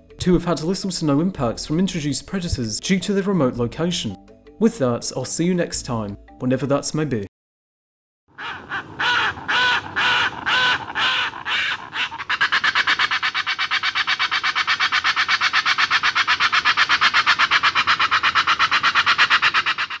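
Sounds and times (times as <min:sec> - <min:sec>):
fast pulsed bird calls: 0:08.3 - 0:20.0
harsh bird calls: 0:08.3 - 0:20.0.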